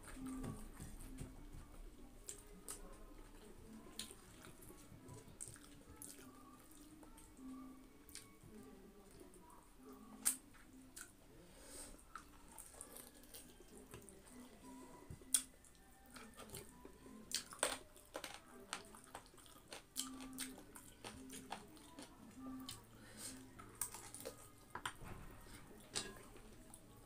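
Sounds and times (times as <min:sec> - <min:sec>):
fingers working wet food: 0:00.0 - 0:09.3, 0:12.1 - 0:27.0
chewing and lip smacks: 0:02.2 - 0:07.5, 0:12.1 - 0:14.5, 0:15.2 - 0:25.0.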